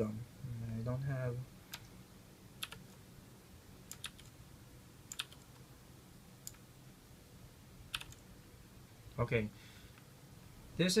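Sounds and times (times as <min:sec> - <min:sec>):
keyboard keys clicking: 0:03.9 - 0:04.3, 0:05.1 - 0:05.6, 0:07.9 - 0:08.2.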